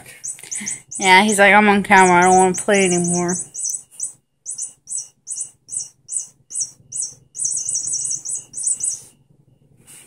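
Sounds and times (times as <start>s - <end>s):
electronic toy chirping squeaks: 0.0s - 9.2s.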